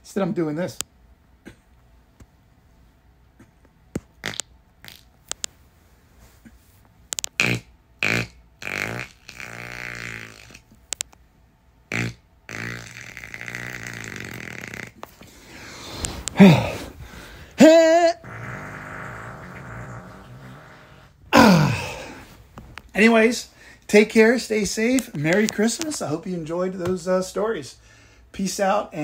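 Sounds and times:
man farting: 0:04.2 - 0:05.1, 0:07.2 - 0:10.8, 0:11.9 - 0:15.3, 0:15.9 - 0:22.7.

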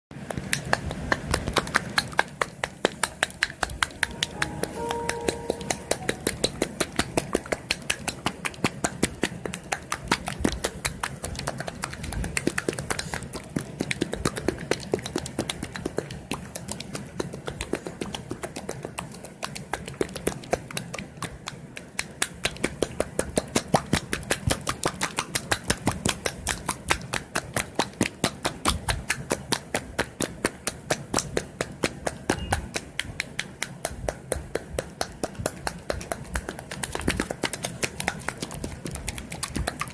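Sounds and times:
wet slaps of mayonnaise: 0:17.4 - 0:39.9.

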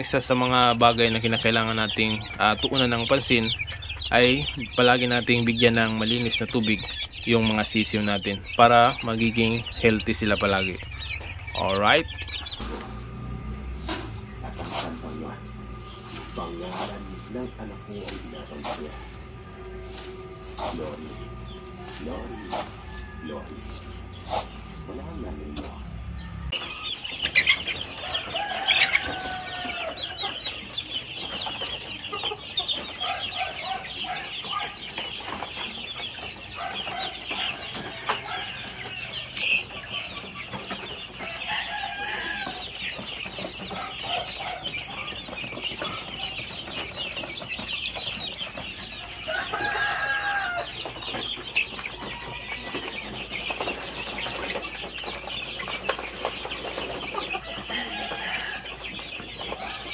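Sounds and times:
chickens clucking and squawking: 0:00.0 - 0:59.9
chickens peeping and chirping: 0:00.0 - 0:59.9.

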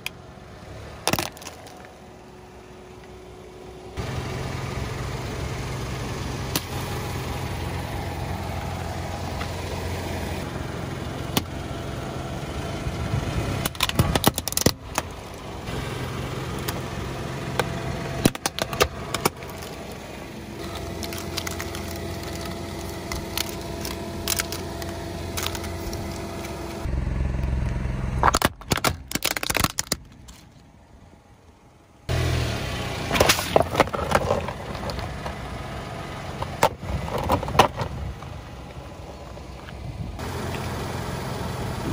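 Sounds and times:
car engine running low: 0:00.0 - 0:41.9.

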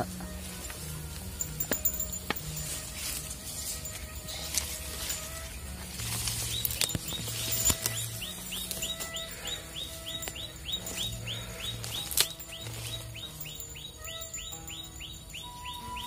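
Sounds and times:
music with held low notes: 0:00.0 - 0:16.0
fast high chirps: 0:06.4 - 0:16.0.

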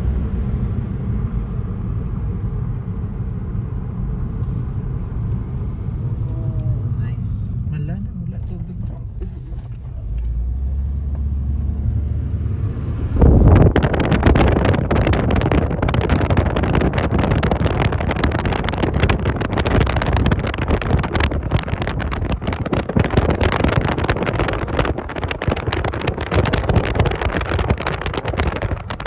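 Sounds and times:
car driving rumble: 0:00.0 - 0:29.0
wind buffeting microphone: 0:08.3 - 0:29.0.

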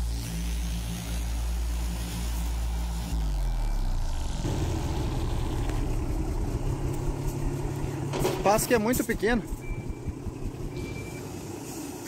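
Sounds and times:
truck diesel engine labouring: 0:03.1 - 0:12.0.

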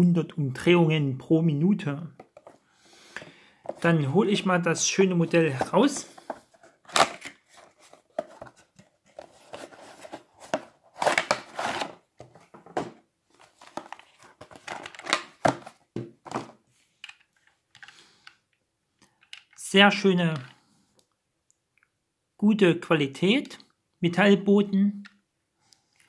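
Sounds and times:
cardboard and plastic packaging rustling: 0:05.2 - 0:16.7.

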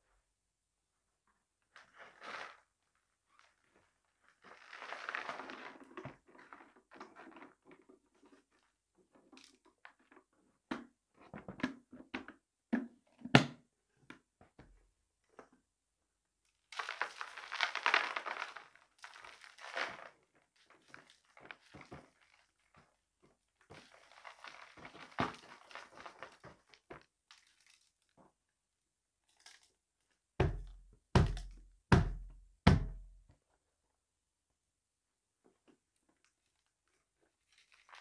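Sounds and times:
beads and pebbles rattling into box: 0:16.8 - 0:20.1.

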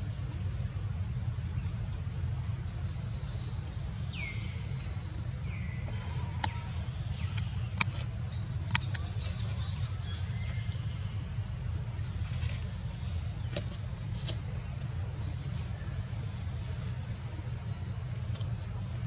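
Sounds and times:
steady low rumble: 0:00.0 - 0:19.0
sharp clicks: 0:08.7 - 0:09.0.

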